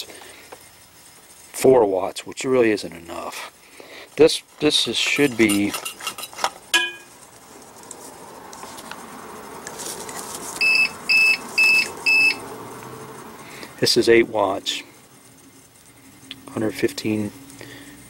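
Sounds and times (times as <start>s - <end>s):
high alarm beeps: 10.6s - 12.4s.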